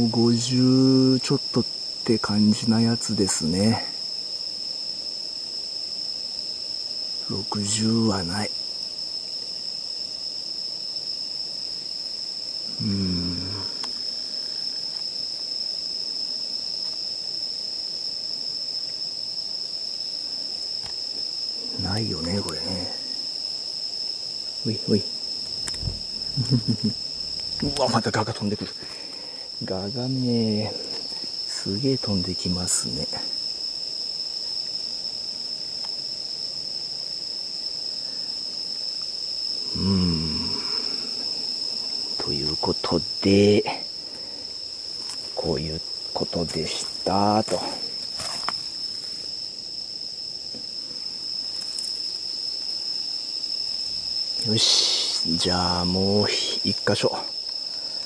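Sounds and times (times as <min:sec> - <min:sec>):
cricket trilling: 0:00.0 - 0:58.0
man low vocal sound: 0:12.7 - 0:13.8, 0:25.6 - 0:28.1, 0:39.7 - 0:40.8.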